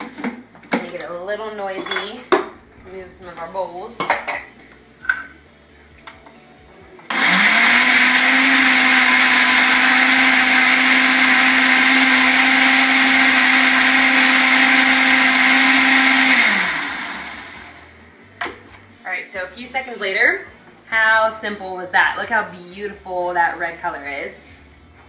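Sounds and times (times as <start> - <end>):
blender running: 7.1 - 18.0.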